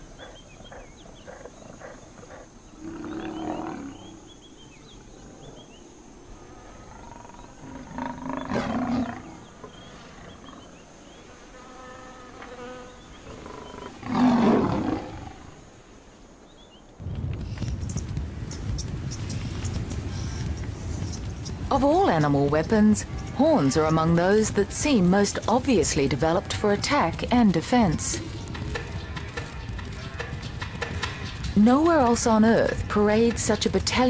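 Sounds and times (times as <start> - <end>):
lion growling: 6.8 - 10.8.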